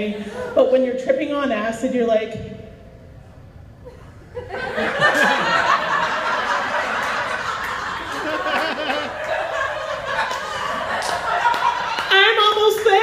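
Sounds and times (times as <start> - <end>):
audience laughing: 3.9 - 12.8.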